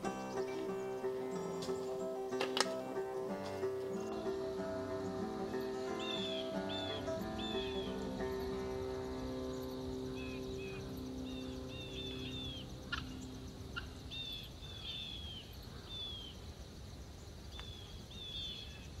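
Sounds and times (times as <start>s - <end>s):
background music held notes: 0.0s - 14.3s
bird call notes: 0.0s - 16.3s
insects chirping: 0.0s - 19.0s
sharp clicks: 2.4s - 3.6s.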